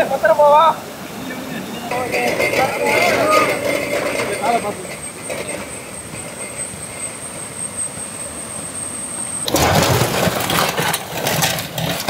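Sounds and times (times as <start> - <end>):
thin high whine: 0.0 - 9.5
river water rushing: 0.0 - 11.4
seafood clattering from metal basin: 9.5 - 12.0.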